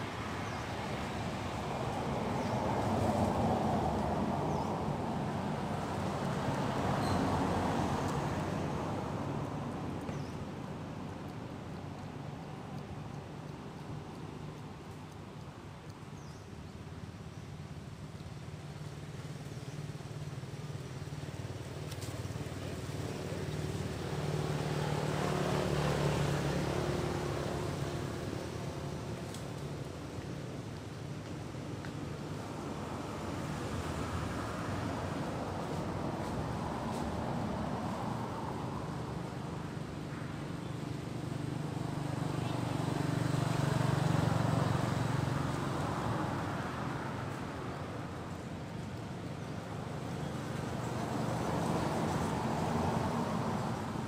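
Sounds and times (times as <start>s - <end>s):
motor vehicle passing: 22.2s - 29.7s, 32.8s - 48.4s
passing vehicle engine drone: 22.4s - 29.7s.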